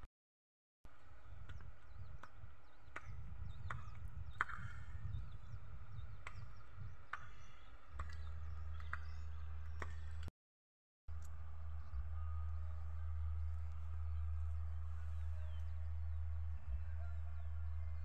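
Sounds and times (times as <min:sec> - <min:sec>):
low rumble: 0:11.1 - 0:18.0
steady low hum: 0:11.1 - 0:18.0.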